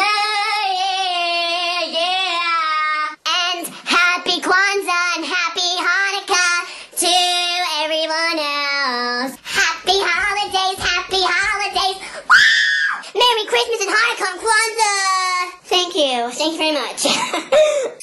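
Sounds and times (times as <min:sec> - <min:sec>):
child singing into microphone: 0:00.0 - 0:12.0.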